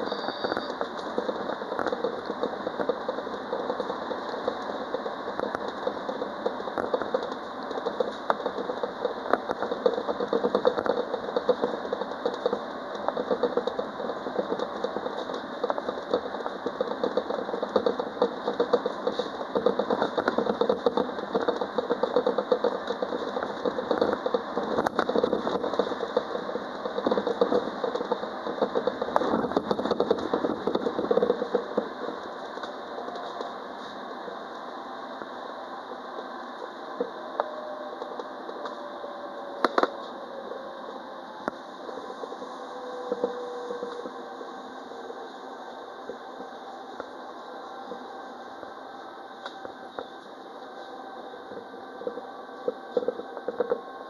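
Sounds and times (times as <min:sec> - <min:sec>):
small clicks and rattles: 0:00.0 - 0:33.6, 0:51.5 - 0:54.0
tram running noise: 0:00.0 - 0:54.0.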